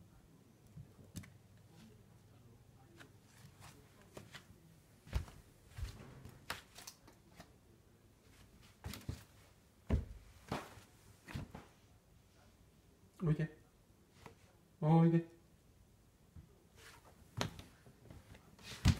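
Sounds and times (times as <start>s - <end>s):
footsteps on wooden floor: 5.1s - 6.3s.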